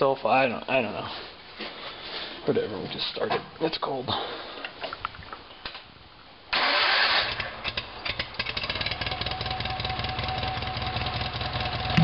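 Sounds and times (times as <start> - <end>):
tractor engine starting and running: 6.5 - 12.0.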